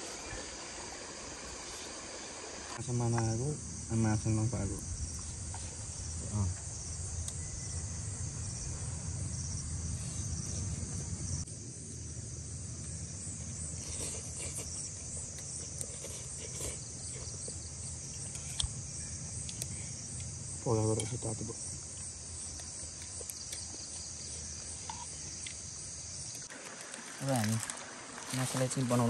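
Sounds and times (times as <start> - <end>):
high-pitched insect chorus: 0.0 - 29.0.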